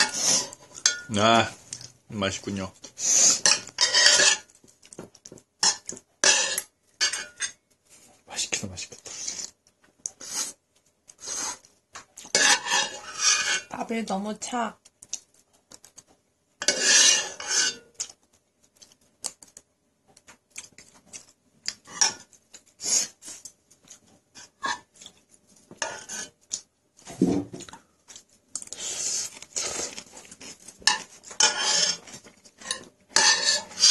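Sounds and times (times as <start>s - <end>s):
metal spoon scraping a pot: 0.0s - 1.2s, 2.8s - 4.5s, 5.6s - 7.6s, 11.2s - 13.9s, 16.6s - 18.1s, 21.8s - 23.2s, 25.8s - 26.4s, 28.7s - 33.9s.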